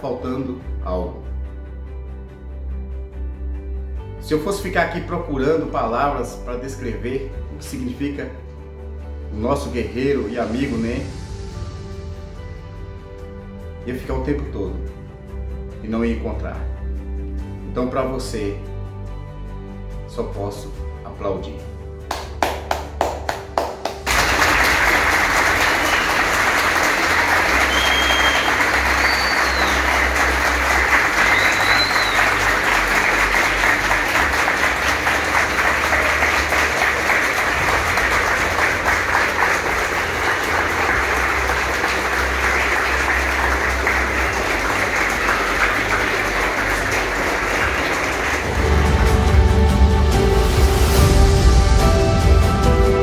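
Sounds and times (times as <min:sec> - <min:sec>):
music: 0:00.0 - 0:53.0
crowd of children clapping: 0:22.1 - 0:49.4
short high whistles: 0:27.5 - 0:30.1, 0:31.2 - 0:32.6.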